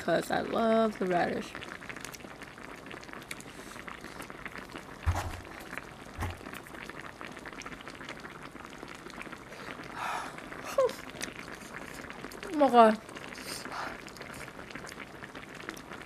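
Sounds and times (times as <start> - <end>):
stew simmering in a pot: 0.0 - 16.0
dull thumps: 5.0 - 6.6.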